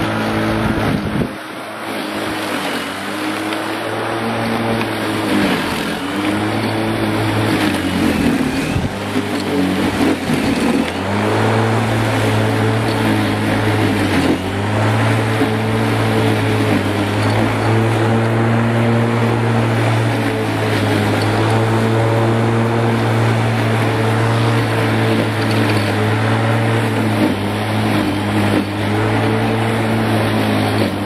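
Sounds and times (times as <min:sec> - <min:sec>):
electric lawn mower cutting grass: 0:00.0 - 0:31.0.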